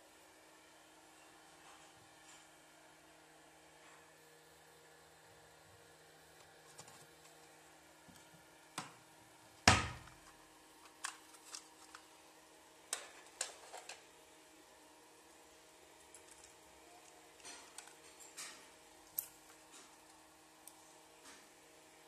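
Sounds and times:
cabinet door thud: 9.7s - 10.1s.

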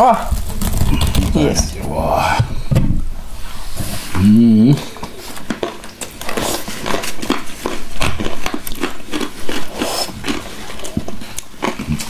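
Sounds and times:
slurping and chewing soup: 3.4s - 12.0s.

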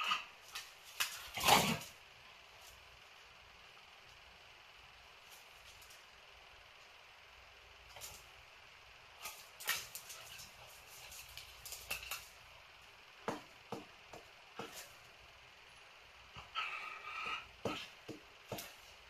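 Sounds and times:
dog claws clicking on tile: 9.2s - 12.4s.

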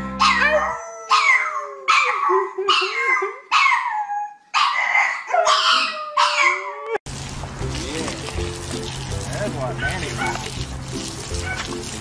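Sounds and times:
dog howling yelps: 0.2s - 7.0s, 11.4s - 11.8s.

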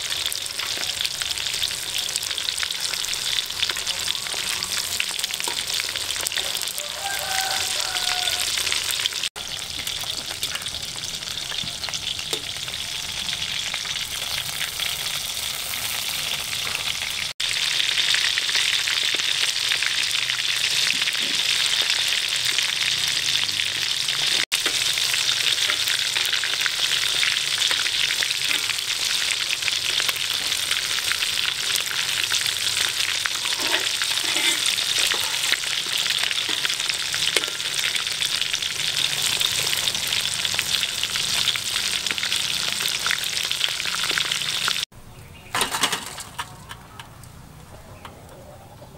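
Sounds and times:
food sizzling in hot oil: 0.0s - 44.9s.

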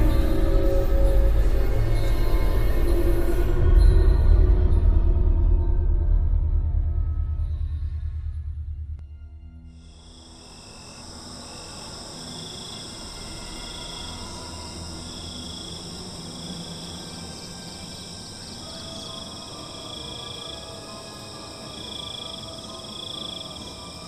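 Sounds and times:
lower cricket trill: 9.7s - 24.0s
crickets trilling: 9.8s - 24.0s.

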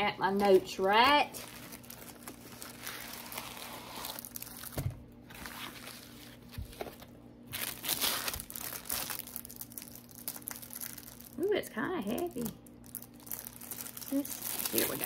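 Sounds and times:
plastic packaging crinkling: 0.3s - 15.0s.

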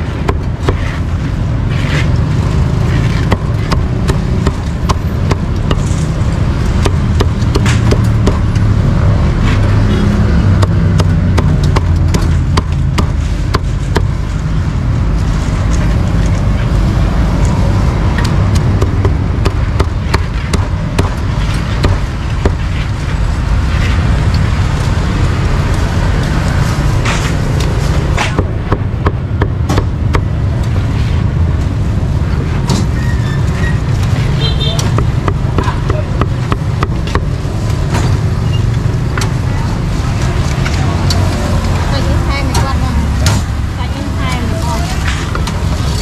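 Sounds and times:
street traffic rumble: 0.0s - 46.0s
cleaver striking chopping board: 28.2s - 30.3s.

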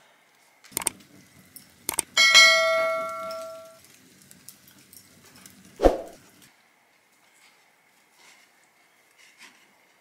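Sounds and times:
quick clicks: 0.7s - 1.0s, 1.9s - 2.1s
bell ding: 2.2s - 3.8s.

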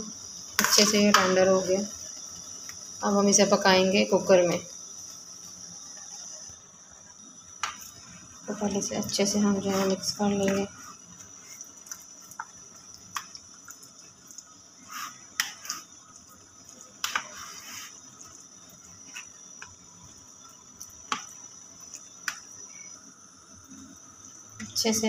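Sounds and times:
wet squelches of stirring: 7.5s - 25.0s.

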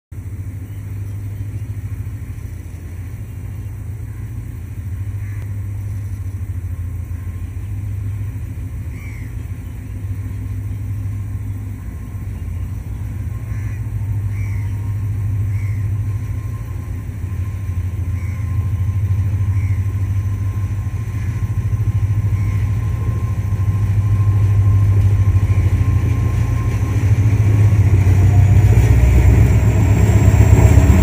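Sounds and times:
diesel locomotive engine rumble: 0.1s - 31.0s.

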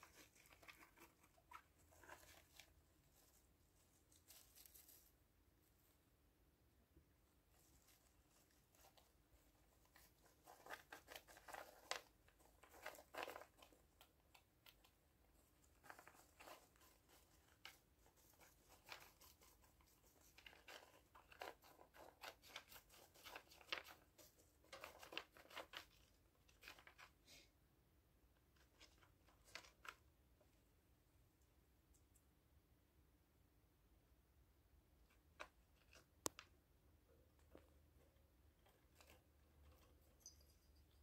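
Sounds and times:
hamster rustling in bedding: 0.0s - 6.0s, 7.4s - 14.4s.

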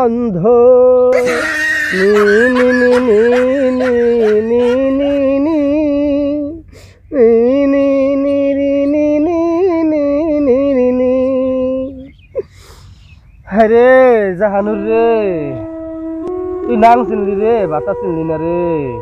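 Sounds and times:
man singing wordless lament: 0.0s - 12.4s, 13.5s - 15.7s.

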